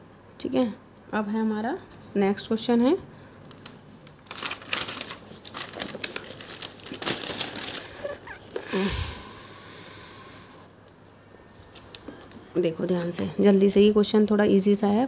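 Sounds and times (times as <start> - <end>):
paper pages rustling: 3.5 - 8.7.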